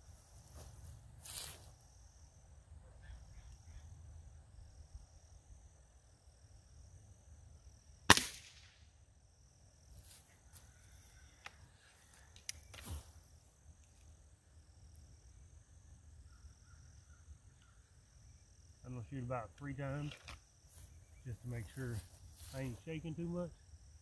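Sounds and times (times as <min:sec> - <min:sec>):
air rifle shot: 0:08.1 - 0:08.8
rifle barrel clicks and clunk: 0:20.0 - 0:20.4.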